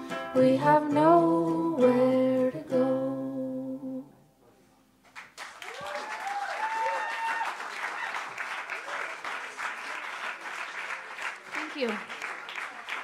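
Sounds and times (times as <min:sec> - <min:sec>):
person singing long notes: 0:00.0 - 0:04.2
audience applauding and whooping: 0:05.1 - 0:13.0.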